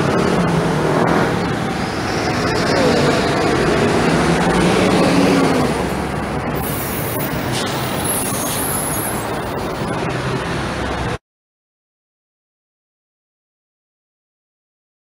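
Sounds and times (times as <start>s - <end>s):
street traffic noise: 0.0s - 11.2s
brief high hiss: 6.6s - 9.9s.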